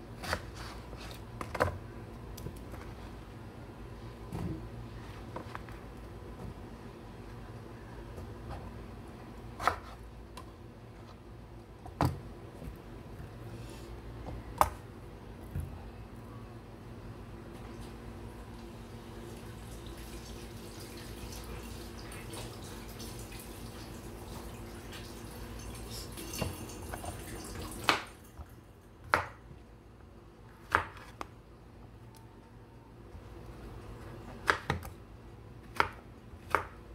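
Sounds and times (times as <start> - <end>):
low steady hum: 0.0 - 36.9
knife chopping on wooden board: 30.7 - 31.1, 35.7 - 36.8.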